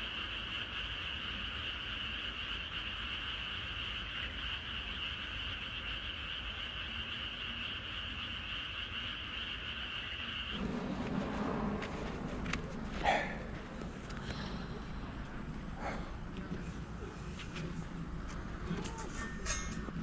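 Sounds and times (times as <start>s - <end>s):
chorus of frogs trilling: 0.0s - 17.0s.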